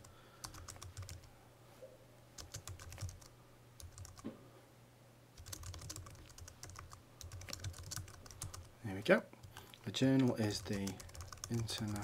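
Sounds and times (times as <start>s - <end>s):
computer keyboard typing: 0.0s - 1.3s, 2.4s - 4.2s, 5.4s - 8.7s, 9.4s - 12.0s.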